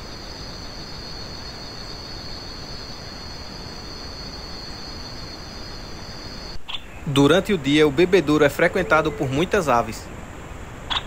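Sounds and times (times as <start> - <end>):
background hiss: 0.0 - 11.0
crickets trilling: 0.0 - 11.0.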